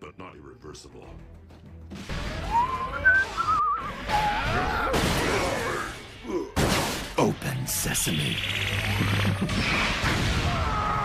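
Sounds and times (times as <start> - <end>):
rushing blast with electronic whistles: 2.3 - 4.6.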